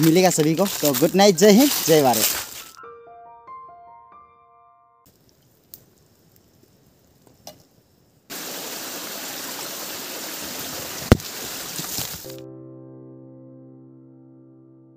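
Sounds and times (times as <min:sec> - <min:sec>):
piano music: 0:00.0 - 0:05.1, 0:12.2 - 0:14.9
faint clicks: 0:05.1 - 0:06.6
forest stream rushing: 0:08.3 - 0:12.4.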